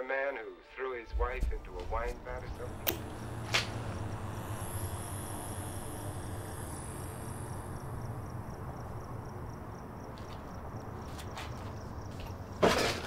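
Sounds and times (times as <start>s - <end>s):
crickets chirping: 0.2s - 13.0s
low steady hum: 1.0s - 11.0s.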